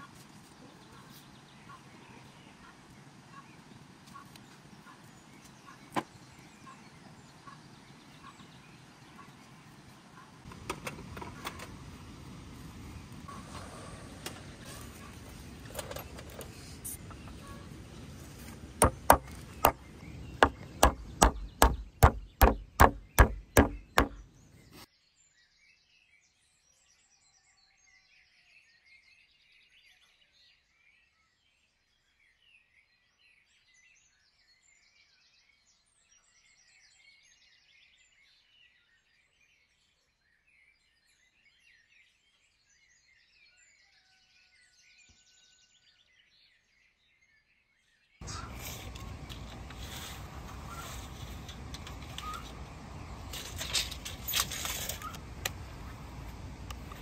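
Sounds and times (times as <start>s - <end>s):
faint bird chirping: 0.0s - 10.4s, 11.3s - 54.2s
hammer blows: 18.8s - 24.3s.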